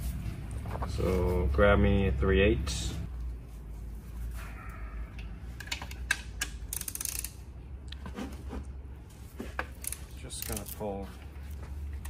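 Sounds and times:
ratchet clicking: 0:05.6 - 0:07.4, 0:09.7 - 0:10.8.

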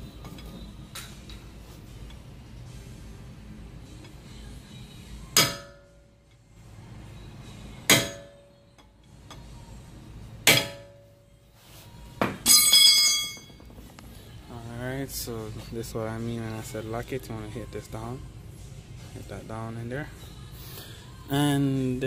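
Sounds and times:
metal knocks on axle nut: 0:05.3 - 0:05.8, 0:07.9 - 0:08.4, 0:10.4 - 0:11.0.

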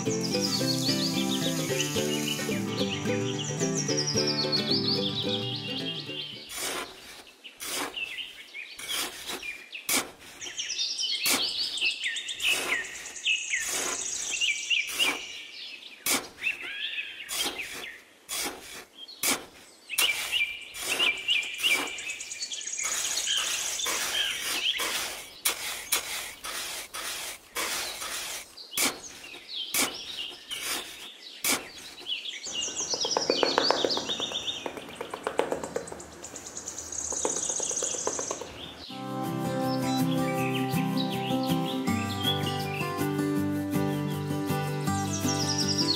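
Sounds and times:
birds chirping: 0:00.0 - 0:18.3, 0:18.9 - 0:26.6, 0:27.4 - 0:45.9
trowel scraping in damp sand: 0:06.4 - 0:32.7.

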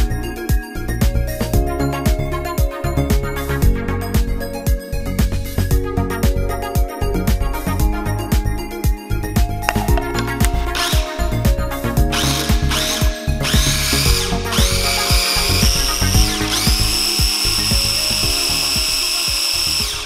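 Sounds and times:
food processor motor whining: 0:12.1 - 0:20.0.

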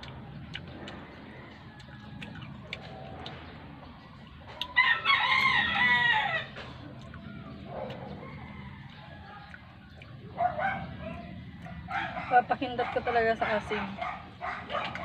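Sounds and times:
rooster crowing: 0:04.7 - 0:06.6, 0:08.1 - 0:09.5.

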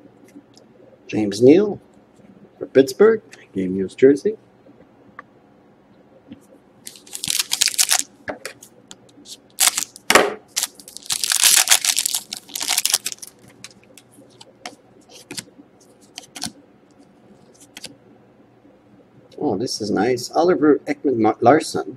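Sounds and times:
foil pack crinkling and tearing: 0:06.9 - 0:08.1, 0:09.5 - 0:10.0, 0:10.6 - 0:13.8.

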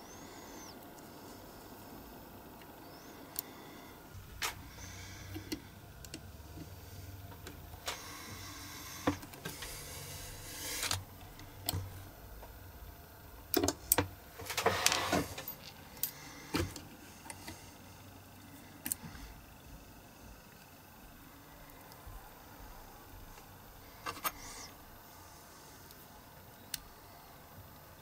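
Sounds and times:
metal parts scraping and rubbing: 0:14.4 - 0:16.2.

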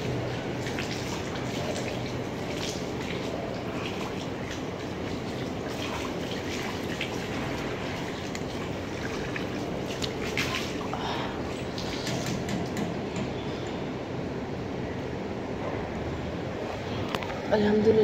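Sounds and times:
water running and splashing: 0:00.0 - 0:12.5.

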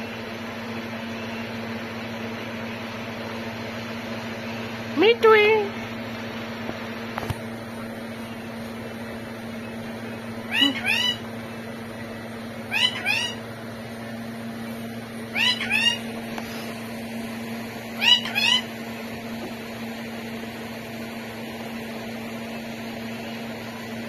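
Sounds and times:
steady low hum: 0:00.0 - 0:24.0
parrot two-note cries: 0:10.5 - 0:11.2, 0:12.7 - 0:13.4, 0:15.3 - 0:16.0, 0:18.0 - 0:18.7.

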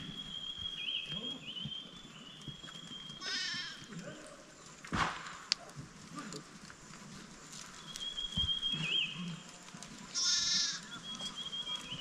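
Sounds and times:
sheep bleating: 0:03.2 - 0:04.0, 0:10.1 - 0:10.9.

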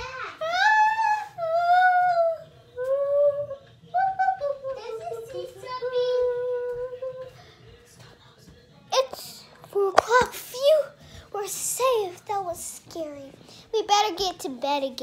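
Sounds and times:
child singing slow tune: 0:00.4 - 0:07.4.

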